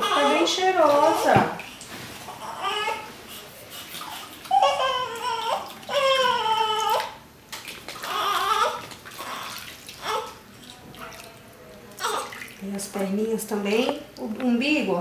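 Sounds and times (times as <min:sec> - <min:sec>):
newborn baby crying: 0:00.0 - 0:01.4, 0:02.3 - 0:07.2, 0:08.0 - 0:10.4, 0:12.0 - 0:12.4.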